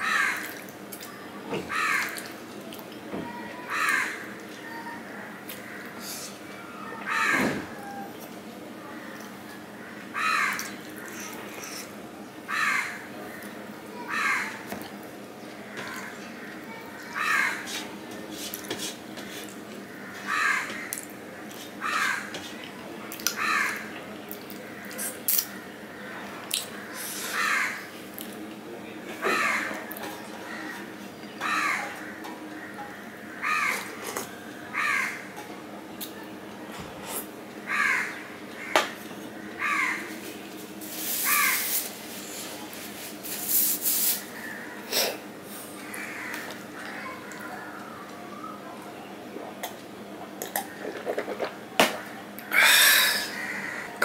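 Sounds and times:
crow cawing: 0:00.0 - 0:00.5, 0:01.7 - 0:02.2, 0:03.7 - 0:04.3, 0:05.3 - 0:06.1, 0:06.9 - 0:08.0, 0:09.8 - 0:11.3, 0:12.5 - 0:13.4, 0:14.0 - 0:14.6, 0:15.7 - 0:17.7, 0:19.9 - 0:21.0, 0:21.8 - 0:22.3, 0:23.4 - 0:23.9, 0:26.8 - 0:27.9, 0:29.2 - 0:29.8, 0:31.4 - 0:34.0, 0:34.7 - 0:35.3, 0:37.7 - 0:40.1, 0:41.2 - 0:41.8, 0:45.8 - 0:47.8, 0:52.4 - 0:54.0.

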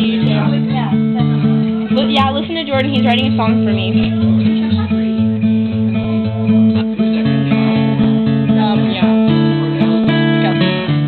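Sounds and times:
acoustic guitar strumming chords: 0:00.0 - 0:11.0.

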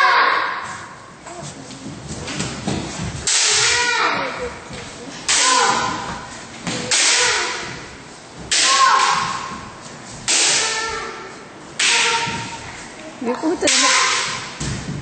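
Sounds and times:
bamboo sword strikes: 0:03.2 - 0:04.0, 0:06.7 - 0:07.8, 0:08.5 - 0:09.6, 0:10.2 - 0:11.0, 0:11.8 - 0:12.6, 0:13.7 - 0:14.8
loud shouts: 0:08.5 - 0:09.5.

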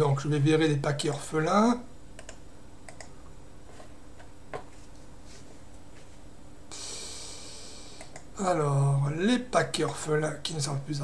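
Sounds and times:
low background hum: 0:00.0 - 0:11.0
computer mouse clicks: 0:02.2 - 0:03.1, 0:08.0 - 0:08.3.

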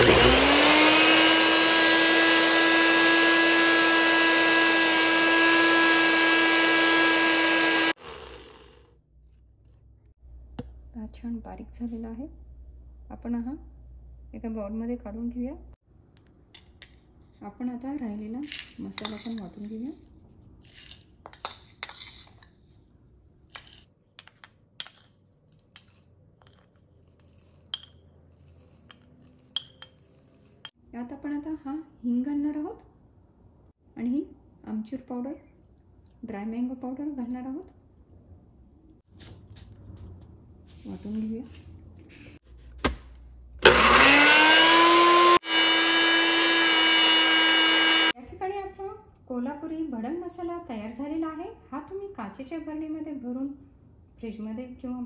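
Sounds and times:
blender grinding spices: 0:00.0 - 0:08.9, 0:43.6 - 0:48.2
seeds rattling into jar: 0:23.5 - 0:30.7
spoon scraping ceramic plate: 0:23.5 - 0:30.7.

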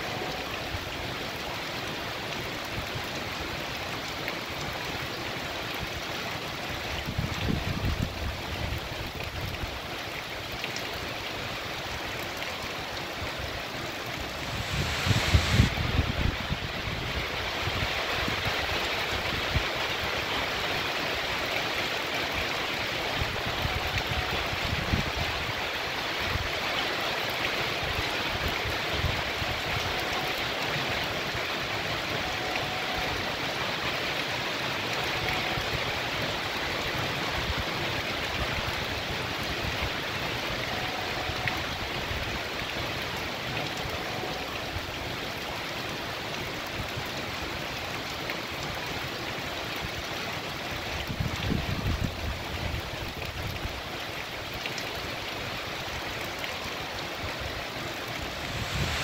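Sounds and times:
heavy rain on street and leaves: 0:00.0 - 0:59.0.

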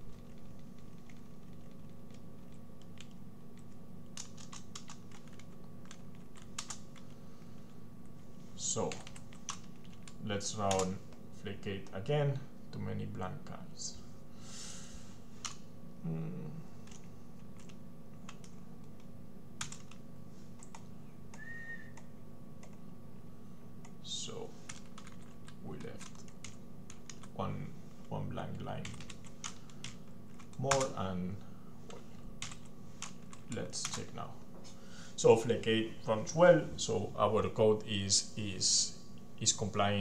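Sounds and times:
faint steady hum: 0:00.0 - 0:40.0
computer keyboard typing: 0:00.1 - 0:07.2, 0:08.8 - 0:10.9, 0:16.8 - 0:20.0, 0:20.6 - 0:21.4, 0:24.7 - 0:27.4, 0:28.8 - 0:31.0, 0:32.4 - 0:34.1.

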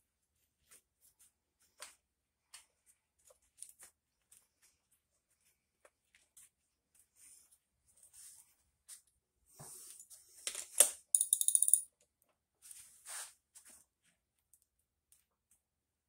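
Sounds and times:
socket ratchet clicking: 0:11.2 - 0:11.8.

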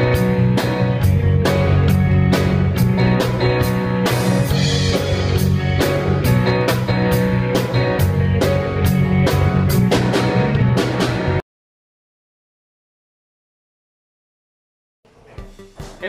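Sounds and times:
steady drum beat: 0:00.0 - 0:11.4, 0:15.2 - 0:16.0.

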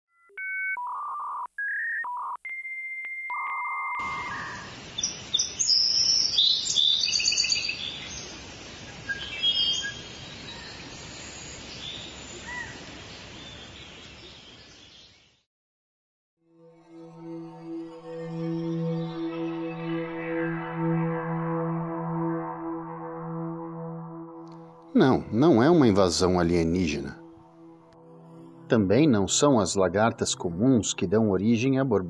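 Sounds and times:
steady hiss: 0:04.0 - 0:12.0
birds chirping: 0:04.0 - 0:15.4.

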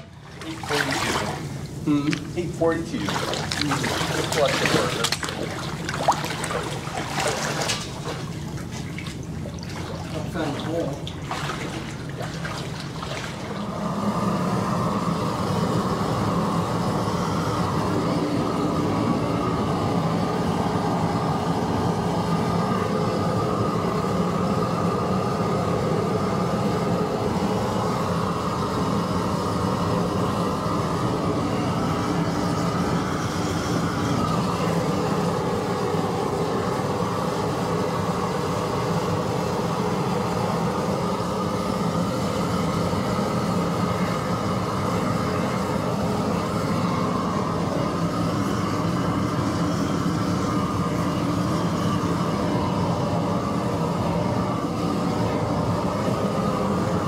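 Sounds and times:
gas torch burning: 0:00.0 - 0:57.0.

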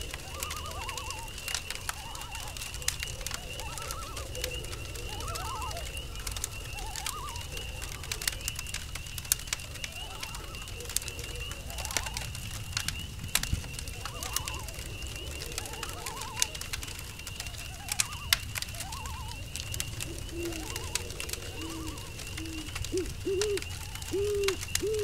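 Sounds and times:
owl hooting: 0:00.0 - 0:08.6, 0:13.9 - 0:25.0
campfire crackling and popping: 0:00.0 - 0:25.0
crickets chirring: 0:00.0 - 0:25.0
frogs calling: 0:00.0 - 0:25.0.

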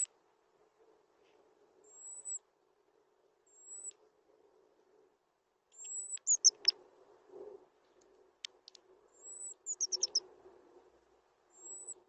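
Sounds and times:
sharp bird ticks: 0:05.7 - 0:06.8, 0:09.7 - 0:10.2
robin whistling: 0:06.1 - 0:06.7, 0:09.7 - 0:10.2.

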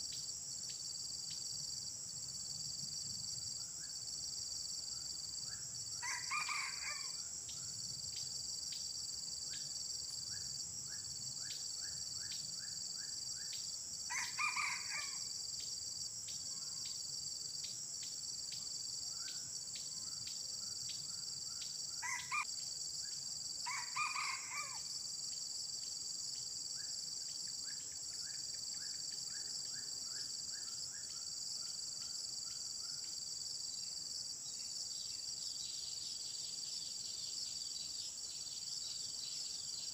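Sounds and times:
rooster crowing: 0:06.0 - 0:07.2, 0:14.1 - 0:15.2, 0:22.0 - 0:22.4, 0:23.6 - 0:24.9.

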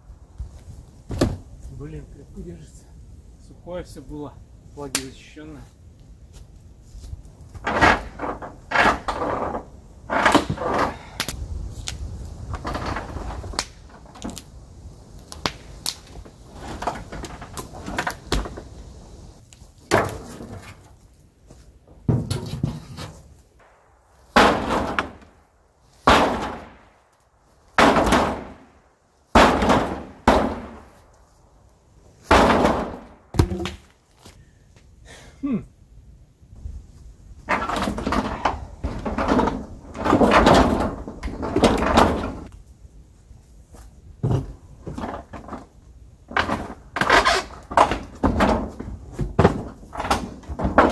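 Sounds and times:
boards and roofing being wrenched: 0:06.4 - 0:31.4, 0:32.0 - 0:34.4, 0:37.3 - 0:42.6, 0:43.8 - 0:50.9
loud bangs: 0:23.6 - 0:25.4, 0:26.0 - 0:26.9, 0:27.8 - 0:28.7, 0:29.3 - 0:31.0, 0:32.3 - 0:33.6.

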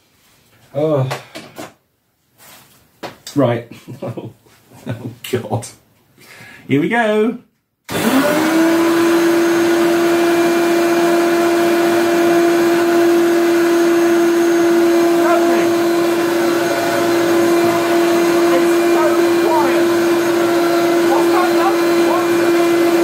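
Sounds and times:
vacuum cleaner motor howling: 0:07.9 - 0:23.0.

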